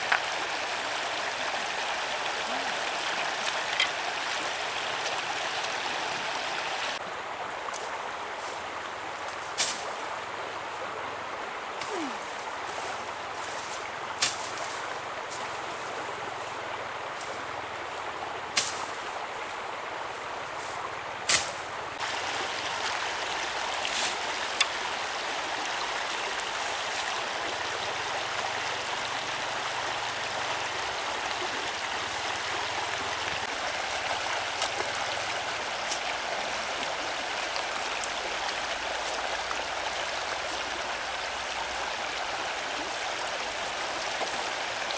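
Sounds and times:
stream running over rocks: 0.0 - 44.9.

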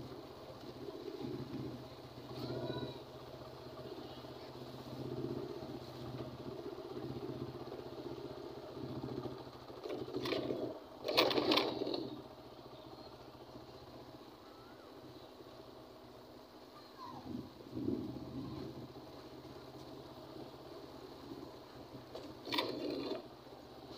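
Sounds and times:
vehicle low hum: 0.0 - 23.9
clatter over railway tracks: 5.0 - 12.5, 17.7 - 23.9.

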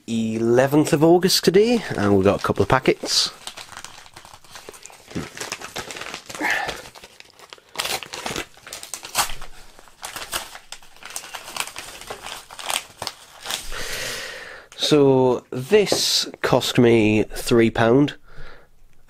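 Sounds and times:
envelope and plastic bag crinkling: 0.2 - 14.1.

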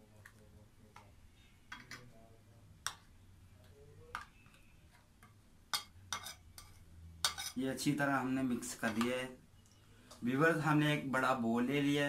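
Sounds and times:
spoon stirring thick marinade: 4.1 - 7.8
spoon clinking against bowl: 5.7 - 7.6.

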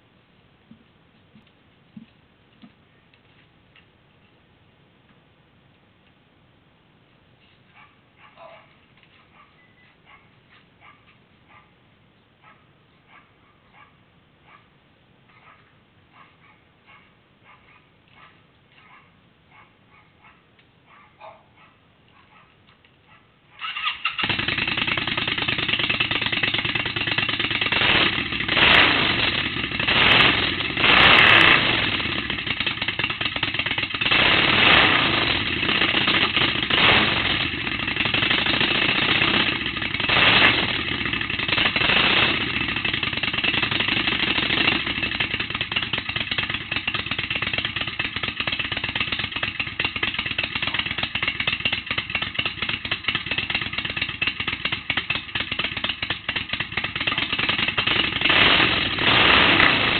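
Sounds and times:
motorcycle engine revving and idling: 23.6 - 59.9.

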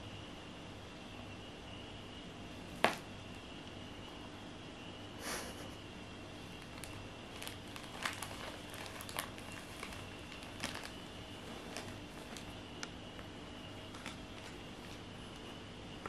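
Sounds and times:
plastic bag crinkling: 6.6 - 15.4.

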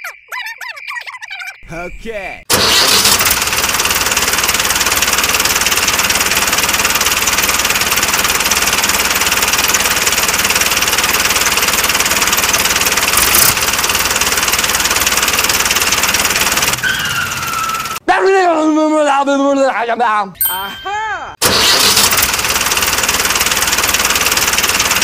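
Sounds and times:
tractor engine knocking: 3.4 - 16.8, 22.3 - 25.0.

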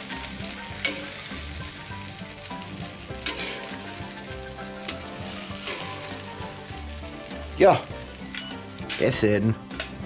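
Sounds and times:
food sizzling on a grill: 0.0 - 10.0
metal tongs clicking on grate: 8.3 - 8.5.

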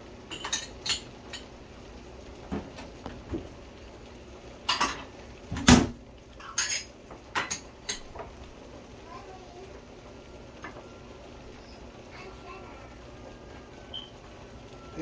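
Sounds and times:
dishes and utensils clinking: 0.3 - 1.5, 4.7 - 5.8, 6.4 - 8.3.

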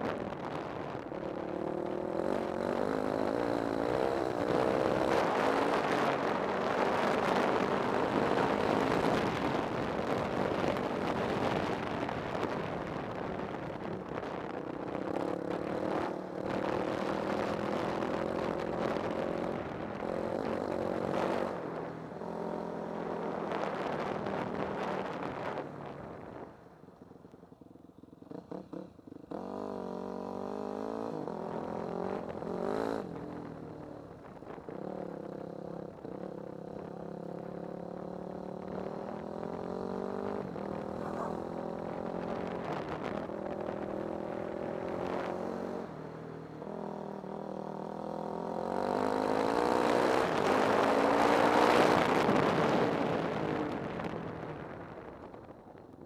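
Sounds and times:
off-road vehicle engine revving: 39.5 - 42.2.

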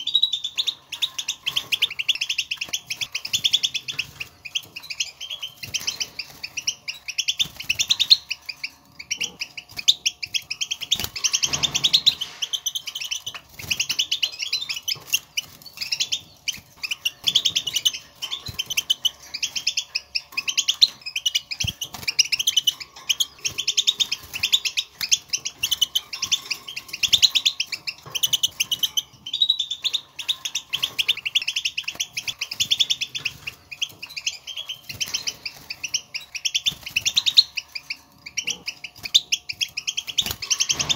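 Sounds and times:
goldfinches twittering: 0.0 - 40.9.

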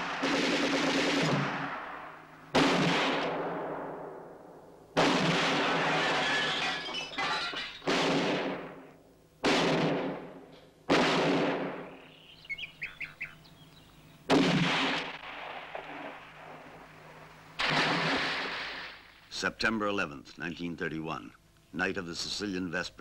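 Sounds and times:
loud gunshots: 0.0 - 4.4, 5.0 - 12.1, 14.3 - 19.1
bird chirps: 11.9 - 14.3.

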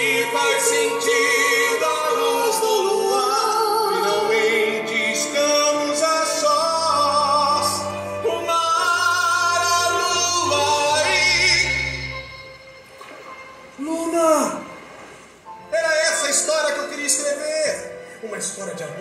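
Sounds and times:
voices singing with vibrato: 0.0 - 12.6
musical accompaniment: 0.0 - 19.0.

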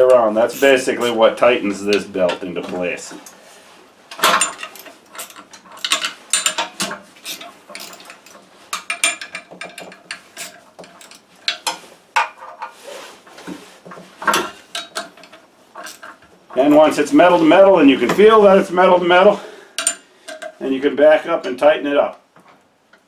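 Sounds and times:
metal clinks: 4.1 - 12.7, 19.8 - 20.6.

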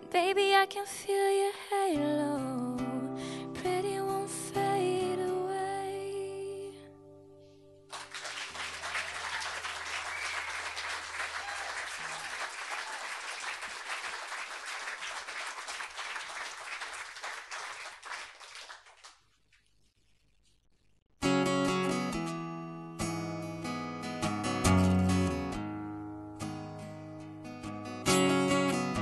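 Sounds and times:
small audience applauding: 7.9 - 19.7
acoustic guitar notes ringing: 21.2 - 29.0.

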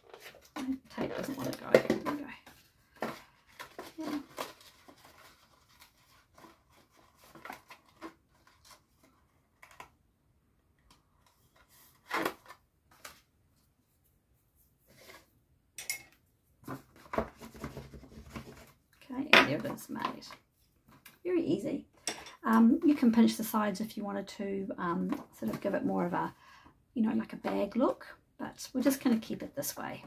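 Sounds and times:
paper rustles and crinkles: 0.0 - 9.9, 16.6 - 18.8.

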